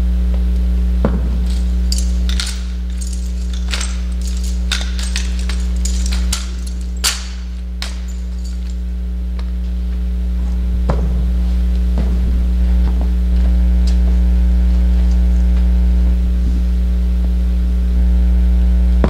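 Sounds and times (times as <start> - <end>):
electrical hum: 0.0 - 19.0
rifles slapping and clacking: 1.1 - 9.6.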